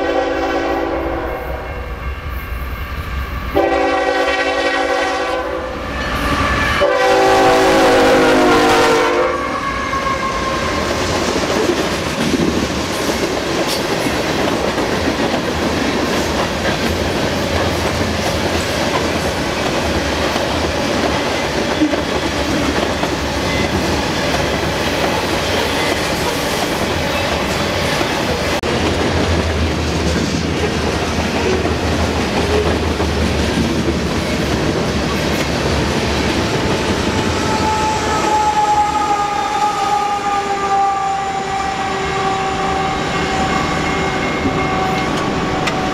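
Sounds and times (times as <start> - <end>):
train air horn blasts: 0.0 - 2.0, 3.5 - 10.9, 37.2 - 45.9
train cars rolling on rails: 0.1 - 45.9.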